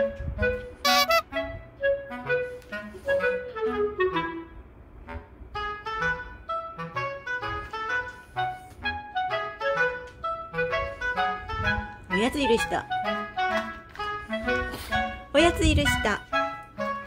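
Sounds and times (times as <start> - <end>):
jaunty instrumental music: 0.0 - 4.5, 5.1 - 17.0.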